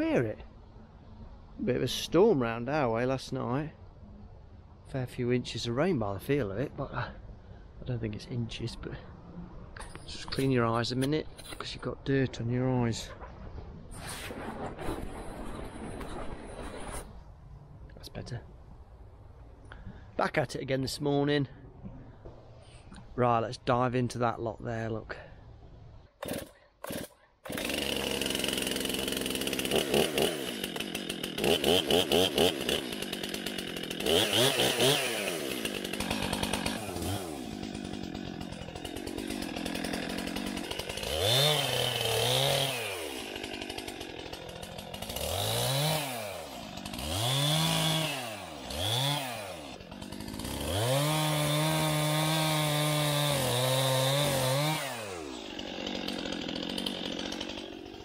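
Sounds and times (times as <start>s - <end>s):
chainsaw cutting wood: 26.2s - 58.0s
chainsaw idling and revving: 26.2s - 58.0s.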